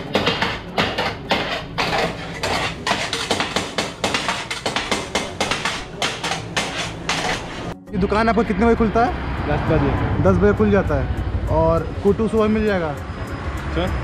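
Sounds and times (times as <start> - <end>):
metal blades clanging on griddle: 0.1 - 7.7.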